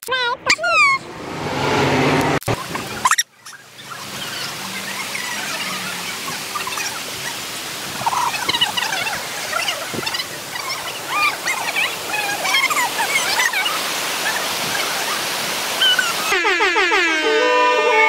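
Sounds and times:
waterfall rushing over weir: 2.4 - 16.4.

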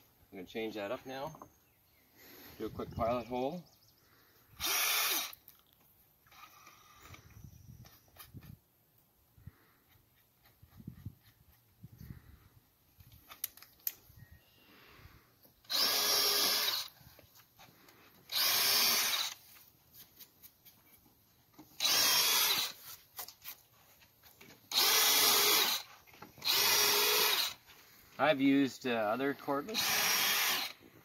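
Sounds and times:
drill drilling into wood: 4.6 - 5.4, 15.6 - 17.0, 18.3 - 19.4, 21.8 - 23.0, 24.7 - 27.6, 29.7 - 30.8.

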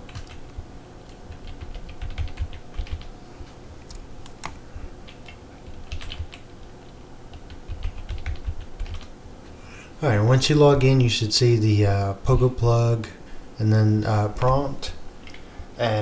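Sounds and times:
typing on a keyboard: 0.1 - 0.4, 1.1 - 3.1, 3.9 - 6.4, 7.3 - 9.1.

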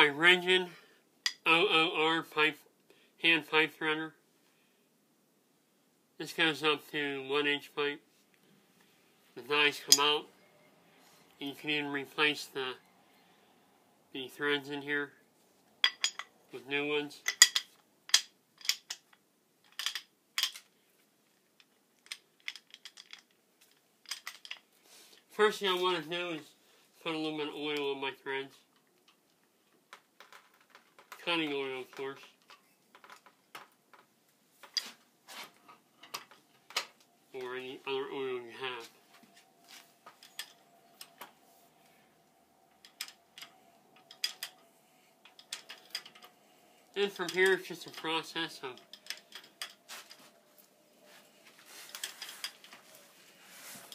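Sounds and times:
metal clicks and clinks: 15.8 - 16.3, 17.2 - 20.7, 21.6 - 24.7, 40.1 - 41.3, 42.7 - 50.7.

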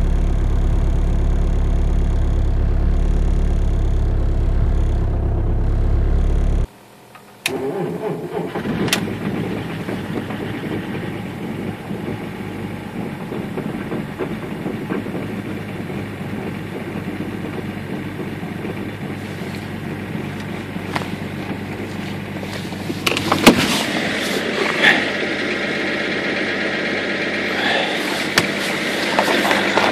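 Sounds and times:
car engine idling: 0.0 - 6.7, 8.6 - 29.9
diesel engine starting: 0.0 - 6.7, 7.4 - 29.9
knocks inside car: 13.0 - 19.1.

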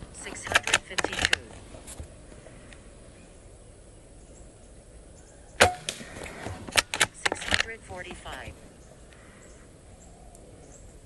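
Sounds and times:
sharp click: 0.4 - 1.4, 6.7 - 7.8
air rifle shot: 5.6 - 7.5.

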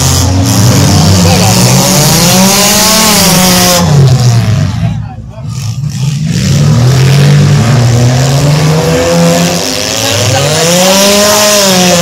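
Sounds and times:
car engines revving hard: 0.0 - 12.0
crowd noise: 0.0 - 12.0.

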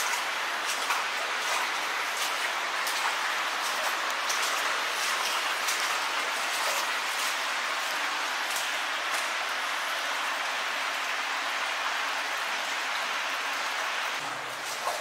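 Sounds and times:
footsteps splashing in shallow water: 0.0 - 10.0, 14.3 - 15.0.

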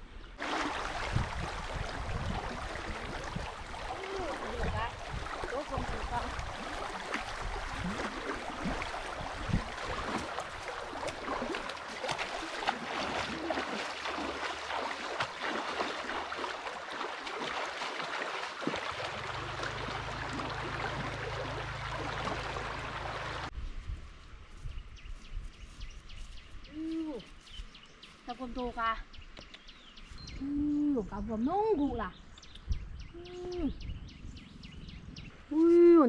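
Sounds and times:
fast-flowing river rushing: 0.4 - 23.5.

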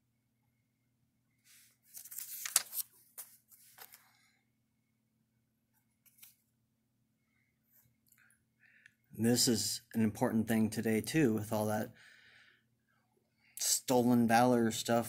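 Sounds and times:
paper page rustling: 1.5 - 4.2, 6.0 - 6.4.

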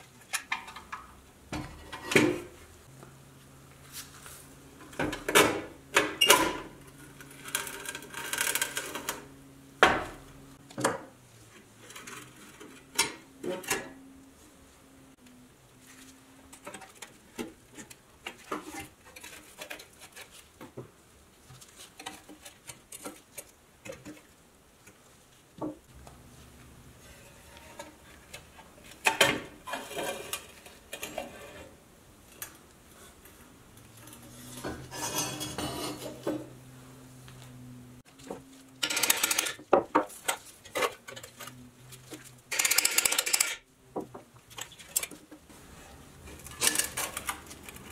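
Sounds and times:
metal toy parts rattling: 38.8 - 39.6, 42.5 - 43.6, 46.4 - 47.9.

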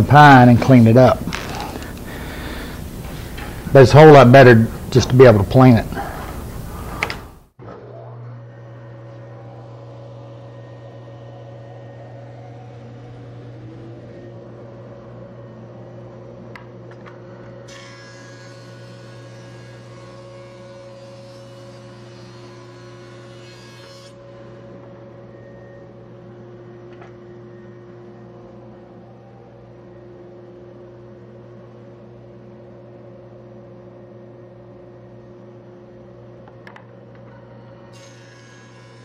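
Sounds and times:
planer and dust collector humming: 0.0 - 26.3.

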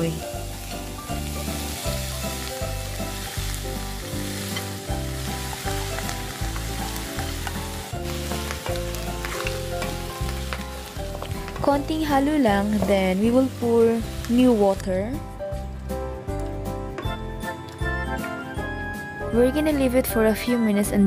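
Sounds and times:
meat sizzling in oil: 0.0 - 15.2
background music with bass: 0.0 - 21.0.

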